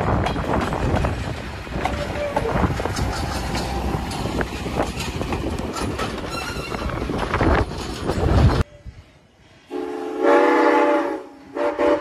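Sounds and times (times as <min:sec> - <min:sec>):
wheels clicking over rail joints: 0:00.0 - 0:08.6
train wheels rumbling on rails: 0:00.0 - 0:08.7.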